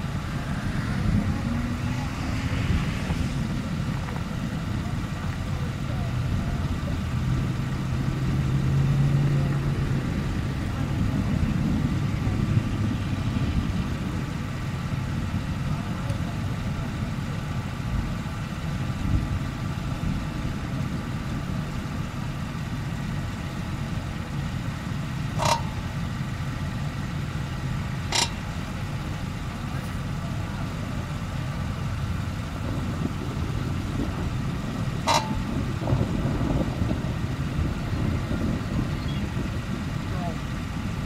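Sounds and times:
vehicle engine running: 0.0s - 41.0s
wind rumbling on microphone: 0.0s - 41.0s
sharp click: 28.1s - 28.4s, 35.1s - 35.4s.

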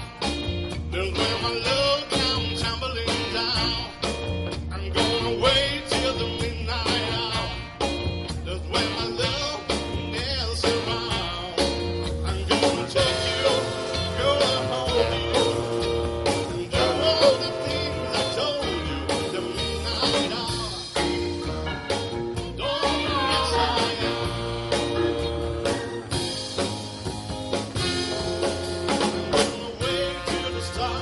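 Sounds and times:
drum kit: 0.0s - 31.0s
person singing: 0.9s - 4.0s, 8.4s - 21.2s, 22.5s - 25.2s, 28.0s - 31.0s
sustained horn chords: 12.9s - 20.6s, 22.6s - 26.8s, 27.8s - 31.0s
saxophone section: 12.9s - 21.8s, 22.6s - 26.8s, 27.8s - 31.0s.

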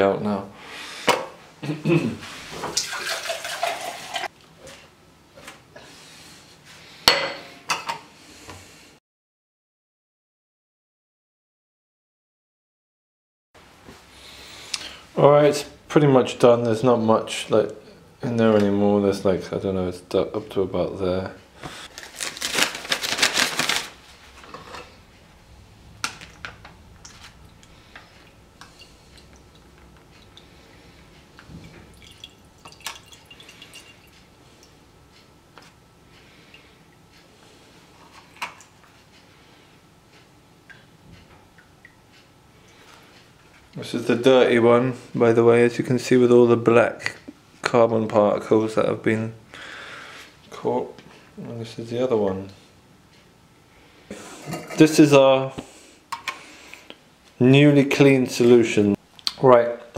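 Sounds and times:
liquid pouring in glassware: 2.7s - 4.3s, 31.4s - 34.1s
paper filter crinkling: 21.8s - 24.5s.

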